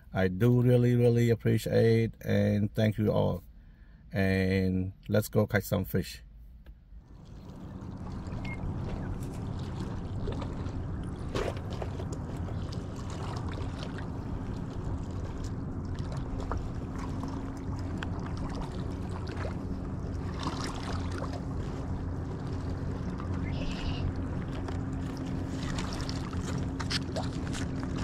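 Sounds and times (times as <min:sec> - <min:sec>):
vehicle engine droning: 0:07.0 - 0:28.0.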